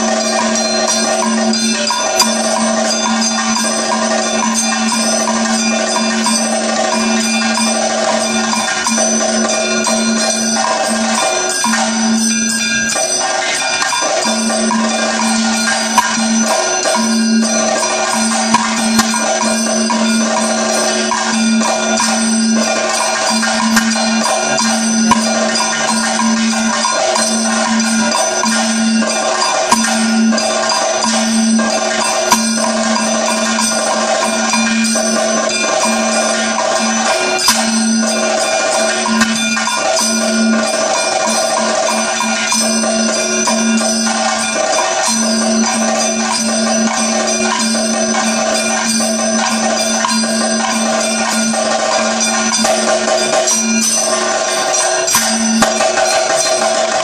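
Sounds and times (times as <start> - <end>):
bell-metal gong struck: 0.0 - 57.0
hand cymbals ringing: 0.0 - 57.0.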